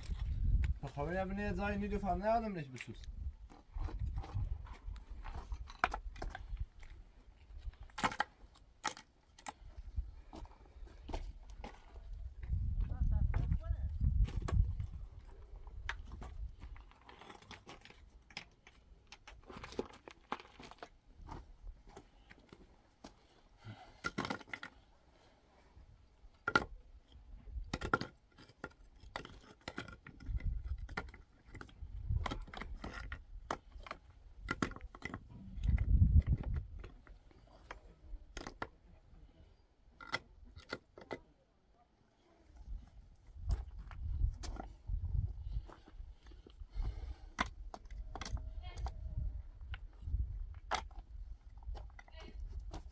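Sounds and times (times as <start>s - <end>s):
clicks knocks and scrapes: 26.4s - 38.7s.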